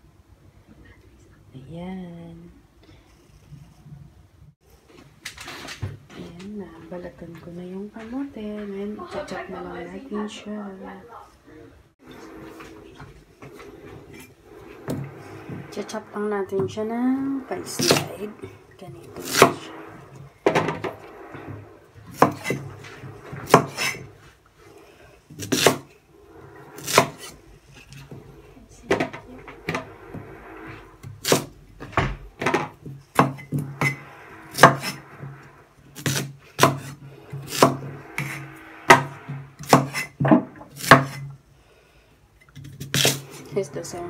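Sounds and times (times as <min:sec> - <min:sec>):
low hum: 0:11.8 - 0:42.0.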